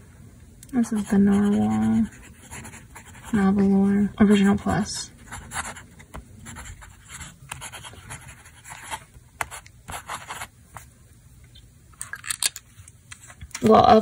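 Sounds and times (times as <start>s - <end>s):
fountain pen nib scratching paper: 6.5s - 10.5s.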